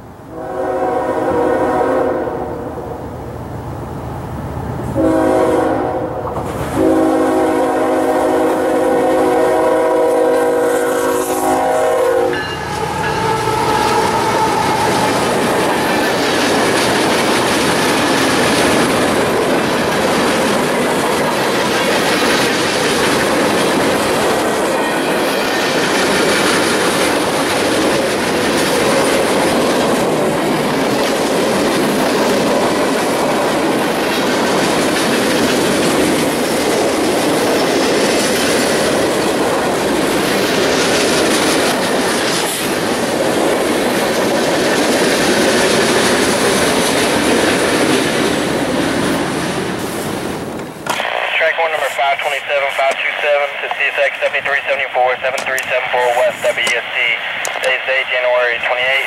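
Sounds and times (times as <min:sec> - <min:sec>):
locomotive horn blasts: 0:00.3 - 0:02.6, 0:05.0 - 0:15.0
train wheels clickety-clack: 0:12.3 - 0:51.0, 0:55.3 - 0:55.7.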